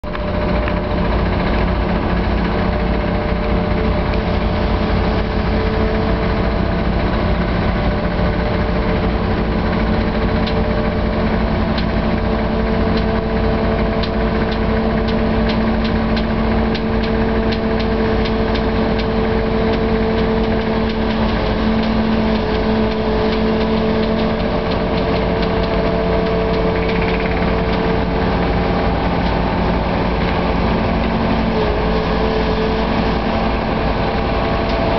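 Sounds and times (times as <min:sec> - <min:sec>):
diesel engine humming: 0:00.0 - 0:34.9.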